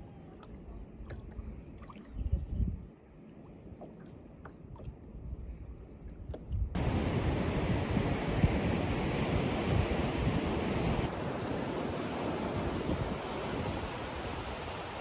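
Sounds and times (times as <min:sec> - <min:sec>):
wind rumbling on microphone: 0:00.0 - 0:03.0, 0:04.8 - 0:15.0
ocean surf on rocky shore: 0:06.8 - 0:15.0.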